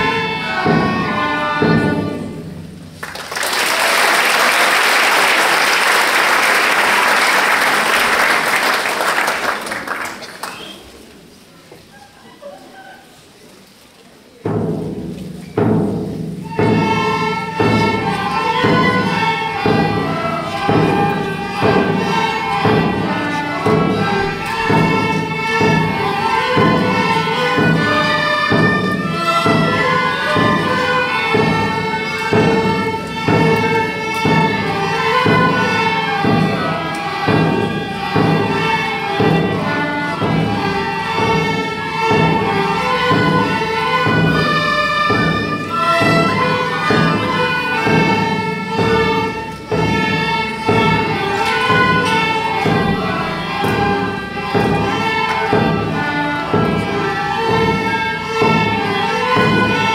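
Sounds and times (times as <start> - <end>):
tin whistles and fiddles march: 10.4 - 11.0
steady drum beat: 14.5 - 59.9.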